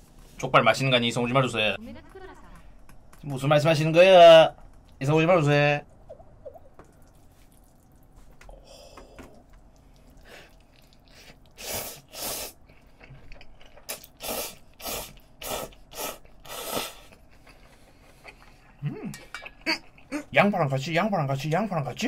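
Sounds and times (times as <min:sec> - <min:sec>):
person slurping noodles: 0:10.1 - 0:12.6, 0:13.8 - 0:17.6.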